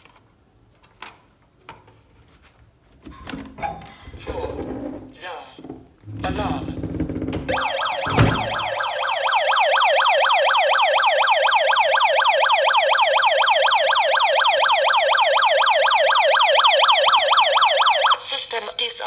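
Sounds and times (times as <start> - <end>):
alarm siren wailing: 7.5 - 18.2.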